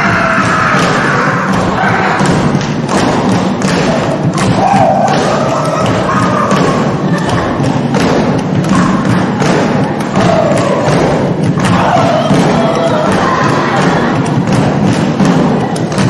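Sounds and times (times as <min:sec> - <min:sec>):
thuds on drum and stage: 0:00.0 - 0:16.0.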